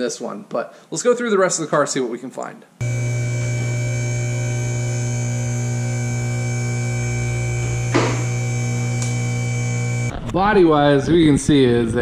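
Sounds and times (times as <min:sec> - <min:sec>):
hydraulic pump motor humming: 0:02.8 - 0:10.2.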